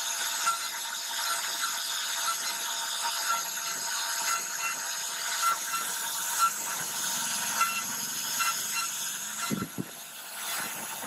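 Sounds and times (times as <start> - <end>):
router spindle whining: 0.0 - 11.0
bit cutting into wood: 4.2 - 10.8.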